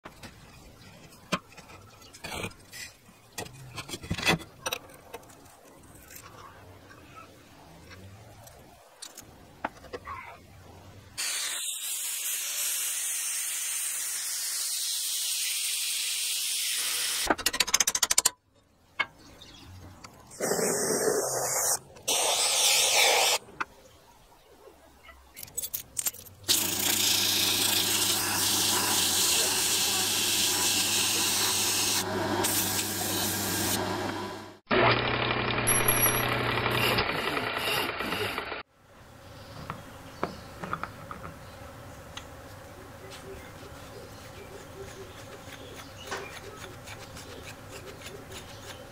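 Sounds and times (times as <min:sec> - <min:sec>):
hissing bursts: 0:20.4 - 0:23.4
metal parts scraping and clinking: 0:25.3 - 0:26.7
angle grinder grinding steel: 0:26.5 - 0:33.9.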